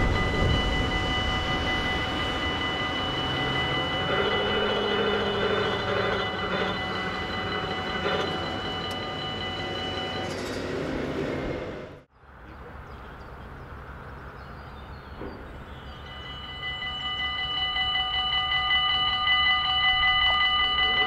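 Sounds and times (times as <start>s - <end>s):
level crossing bells ringing: 0.0s - 11.2s, 15.7s - 21.0s
barrier drives whining: 0.0s - 12.1s.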